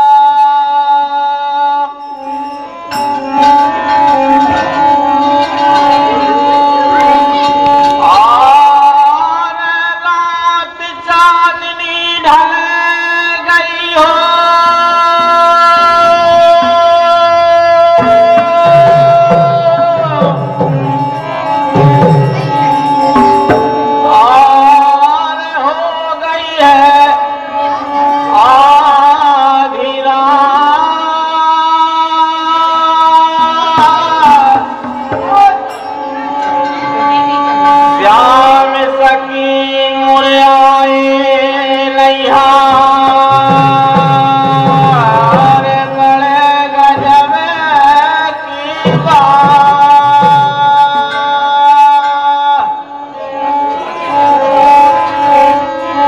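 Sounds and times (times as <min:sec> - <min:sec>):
harmonium melody: 0:00.0 - 0:56.0
man singing: 0:00.0 - 0:56.0
hand drum strokes: 0:18.0 - 0:24.9.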